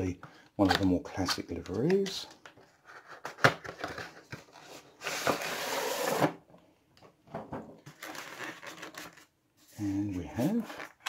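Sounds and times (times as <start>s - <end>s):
plastic tray scraping out of box: 5.0s - 6.4s.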